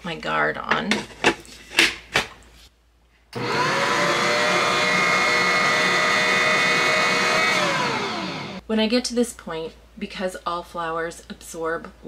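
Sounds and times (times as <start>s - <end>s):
stand mixer motor whining: 3.4s - 8.6s.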